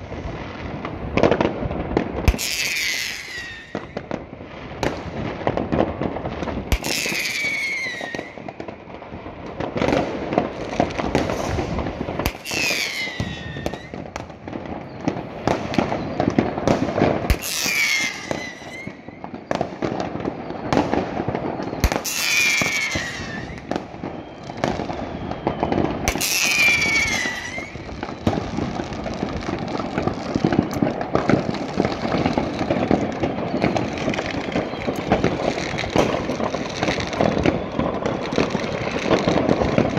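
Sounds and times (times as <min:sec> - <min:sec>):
fireworks bangs and crackle: 0:00.0 - 0:39.9
high falling whistles: 0:06.8 - 0:08.4, 0:12.4 - 0:14.0, 0:21.5 - 0:28.3, 0:32.2 - 0:39.0.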